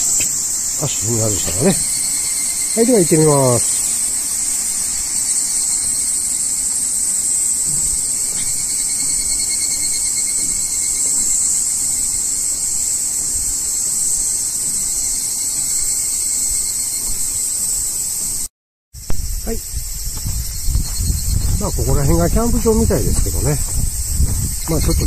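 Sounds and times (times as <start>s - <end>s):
high-pitched insect chorus: 0.0s - 25.0s
footsteps on metal stairs: 7.4s - 18.5s, 20.1s - 25.0s.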